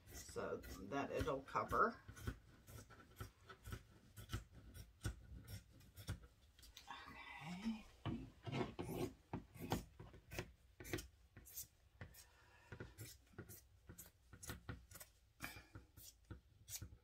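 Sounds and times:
scissors cutting fabric: 0.0s - 6.7s.

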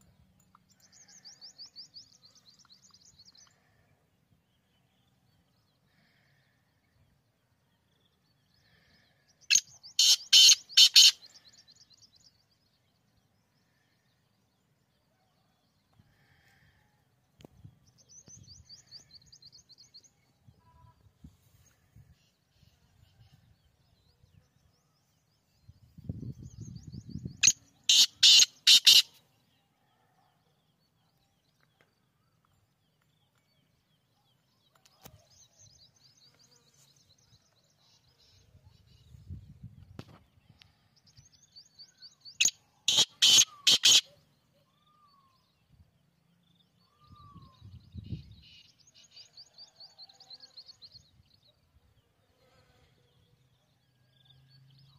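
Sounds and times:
bird calling sharp notes: 9.5s - 11.2s, 27.4s - 29.2s, 42.4s - 44.2s.

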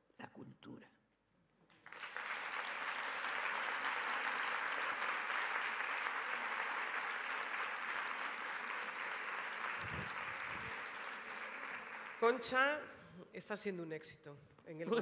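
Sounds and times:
crowd applauding: 1.7s - 12.7s.

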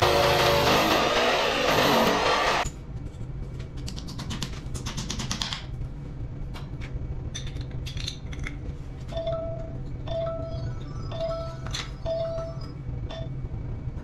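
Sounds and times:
electric drill: 0.0s - 2.6s
low hum: 5.7s - 14.0s.

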